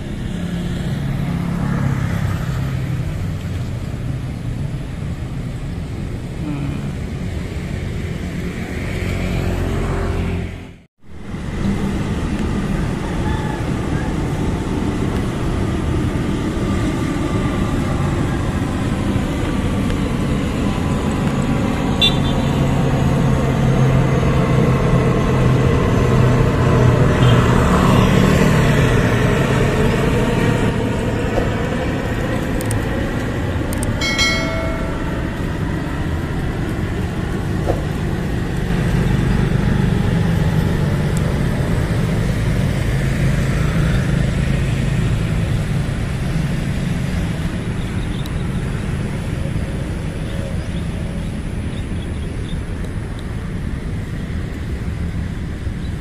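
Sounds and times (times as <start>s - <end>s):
propeller aircraft drone: 0.0s - 56.0s
street traffic: 0.0s - 56.0s.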